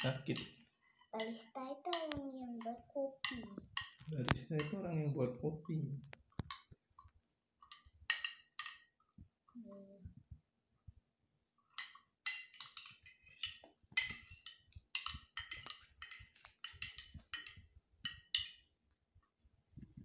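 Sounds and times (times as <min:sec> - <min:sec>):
spoon clinking against cup: 0:11.8 - 0:18.6.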